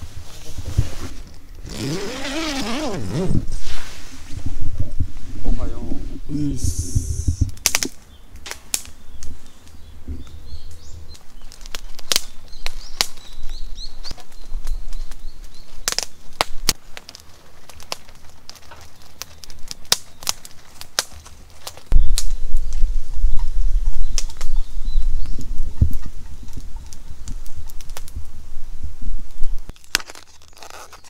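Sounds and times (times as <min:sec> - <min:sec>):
low rumble on microphone: 0:00.0 - 0:07.7
sharp clicks and crackles: 0:07.5 - 0:09.8, 0:10.6 - 0:28.3.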